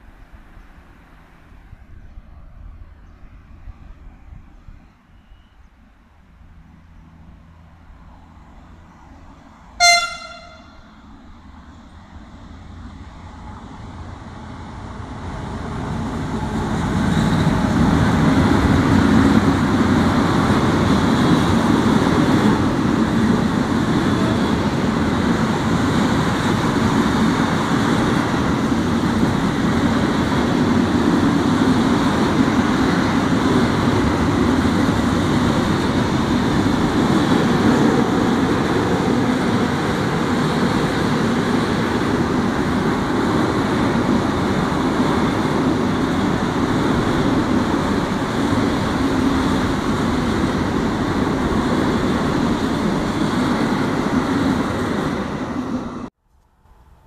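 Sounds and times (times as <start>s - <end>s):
train wagons rumbling past: 6.1s - 56.1s
train horn toot: 9.8s - 11.1s.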